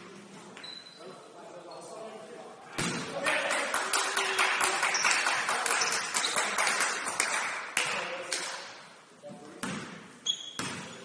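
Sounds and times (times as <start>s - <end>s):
shoes squeaking on court: 0.3s - 1.1s, 9.6s - 11.0s.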